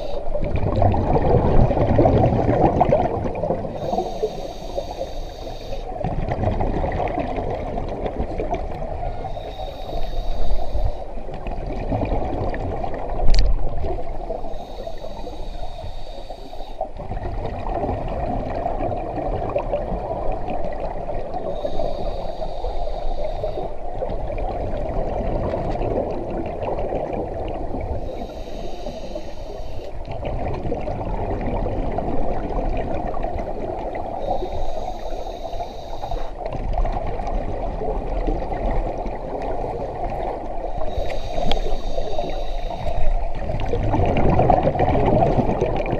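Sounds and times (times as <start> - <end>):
regulator hissing inhale: 0.0 - 0.4, 3.8 - 5.9, 9.2 - 11.2, 14.2 - 17.0, 21.4 - 23.8, 28.0 - 30.1, 34.2 - 36.5, 40.7 - 43.5
bubbling exhalations: 43.4 - 45.9.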